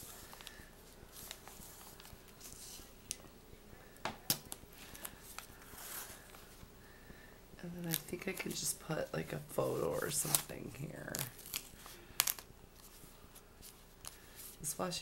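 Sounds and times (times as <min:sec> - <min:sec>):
pages turning: 0:00.0 - 0:02.9, 0:09.6 - 0:14.6
paper rustling: 0:00.0 - 0:02.9.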